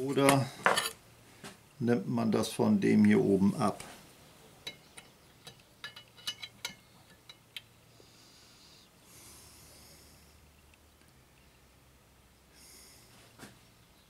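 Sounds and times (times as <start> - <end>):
soft hiss: 0.0 - 14.0
small metal parts clicking: 4.7 - 7.7.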